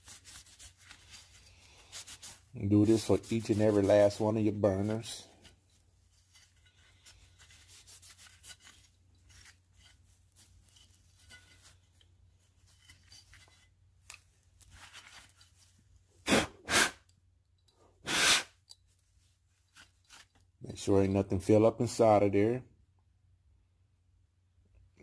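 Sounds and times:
brush scratching furnace burner: 0.0 - 15.7.

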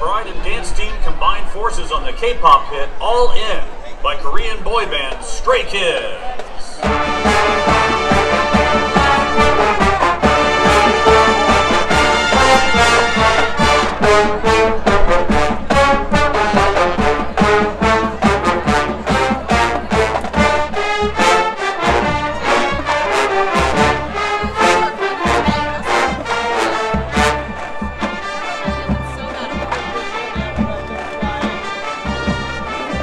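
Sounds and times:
brass melody: 6.8 - 33.0
drum strokes: 6.8 - 33.0.

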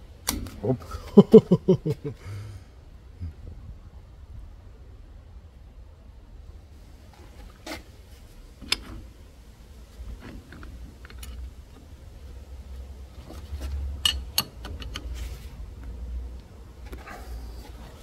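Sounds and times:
low background rumble: 0.0 - 18.0
metal clicks and taps: 14.0 - 15.2.

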